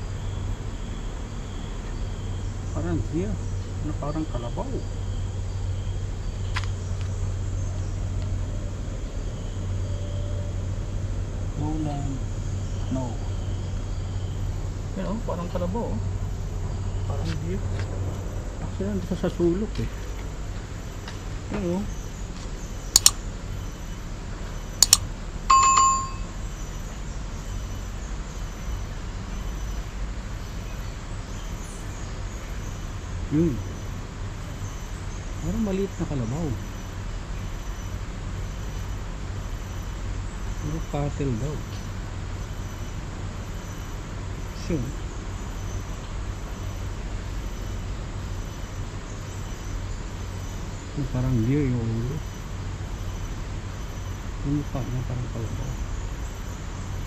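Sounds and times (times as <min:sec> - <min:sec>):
low background noise: 0:00.0 - 0:57.0
quick clicks: 0:23.0 - 0:23.2, 0:24.8 - 0:26.2
short bell-like ring: 0:24.8 - 0:26.3.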